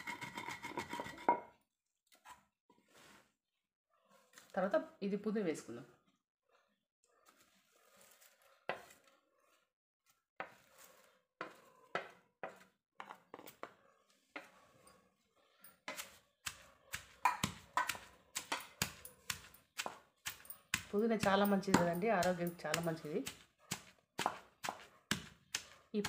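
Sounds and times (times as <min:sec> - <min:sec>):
knocks and scrapes on stone mortar: 0:00.0 - 0:01.6, 0:10.4 - 0:25.8
wooden pestle pounding in mortar: 0:15.9 - 0:25.8.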